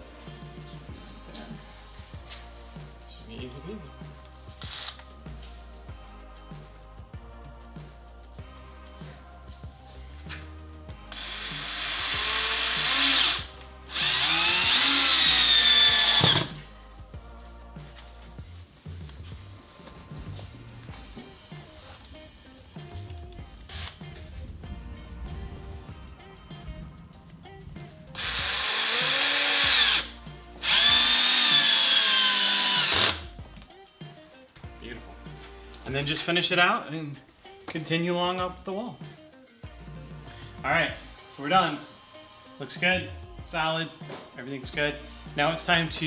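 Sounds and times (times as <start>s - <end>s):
cordless drill driving screw: 4.6s - 5.0s, 11.1s - 16.6s, 23.7s - 24.0s, 28.2s - 33.3s.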